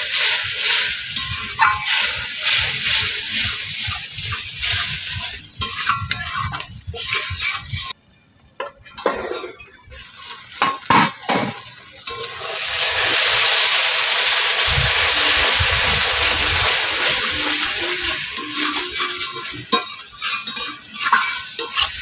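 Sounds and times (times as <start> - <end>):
paste frying hiss: 0.0 - 8.0, 10.0 - 22.0
spatula scraping paste in pan: 17.1 - 22.0.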